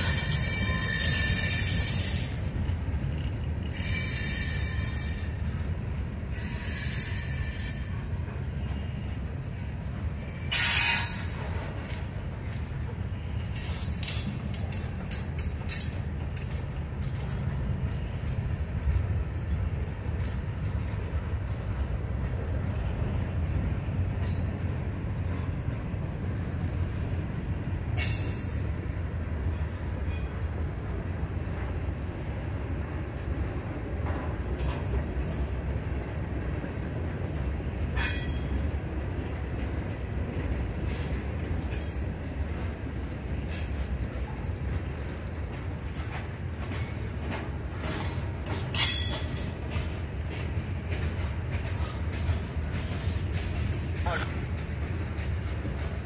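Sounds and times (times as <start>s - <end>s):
high-pitched wheel squeals: 0.0s - 2.4s, 3.6s - 5.3s, 6.3s - 8.0s
train wheels rumbling on rail: 0.0s - 56.0s.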